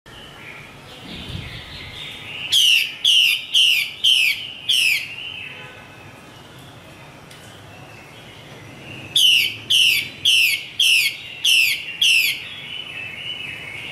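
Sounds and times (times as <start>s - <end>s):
harsh downward-sweeping bird calls: 0.1s - 5.6s, 8.0s - 13.9s
bird warbling: 1.1s - 5.2s, 9.2s - 12.5s.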